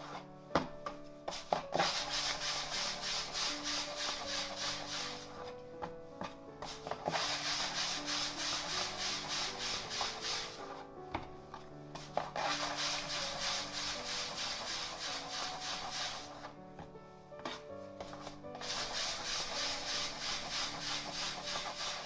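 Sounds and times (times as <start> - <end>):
soft background music: 0.0 - 22.0
hands rubbing bread dough: 1.3 - 5.5, 6.6 - 10.8, 12.0 - 16.6, 17.4 - 22.0.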